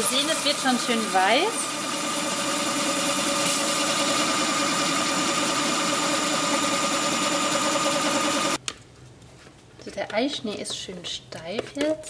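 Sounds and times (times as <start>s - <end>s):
food processor motor humming: 0.0s - 8.6s.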